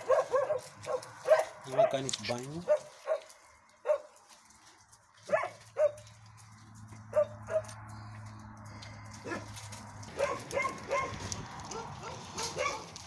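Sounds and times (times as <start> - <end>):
dogs barking: 0.0 - 4.2, 5.2 - 6.2, 7.0 - 7.9, 9.2 - 13.0.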